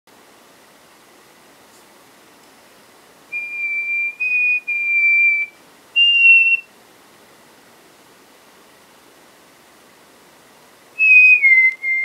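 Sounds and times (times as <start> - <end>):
person whistling: 3.4 - 6.7, 11.0 - 12.0.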